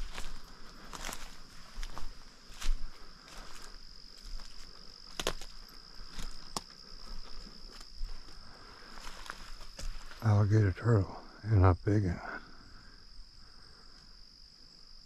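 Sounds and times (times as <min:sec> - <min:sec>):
footsteps on dry leaves: 0:00.0 - 0:10.3
twigs crackling: 0:00.0 - 0:10.4
high-pitched insect drone: 0:00.0 - 0:15.0.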